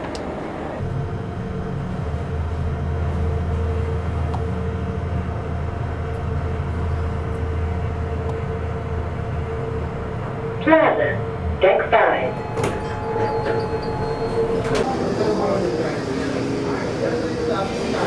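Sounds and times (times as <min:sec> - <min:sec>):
elevator low hum: 0:00.0 - 0:18.0
faint higher tone: 0:12.3 - 0:14.9.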